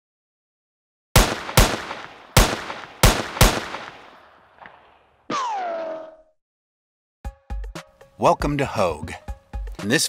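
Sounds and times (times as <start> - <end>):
gunshots with echo: 1.2 - 5.7.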